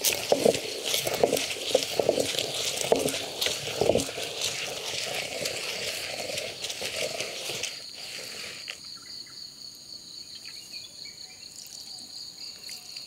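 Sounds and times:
stone pestle grinding in mortar: 0:00.0 - 0:08.7.

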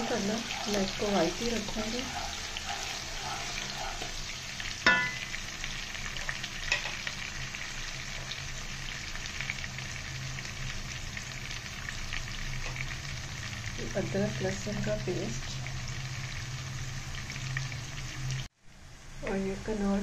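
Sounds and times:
onions sizzling in oil: 0:00.0 - 0:20.0
sharp knock on pan: 0:04.8 - 0:05.3.

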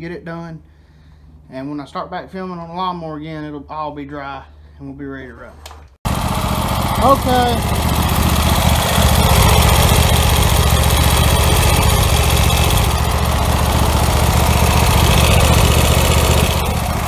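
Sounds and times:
lawn mower engine running: 0:06.1 - 0:17.0.

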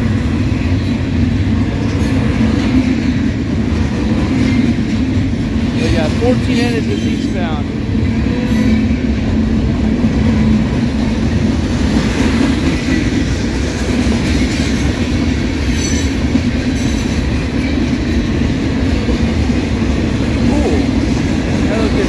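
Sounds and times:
freight train wheels rumbling: 0:00.0 - 0:22.0
train wheel squeal: 0:06.8 - 0:07.4, 0:08.2 - 0:09.0, 0:15.6 - 0:17.8.

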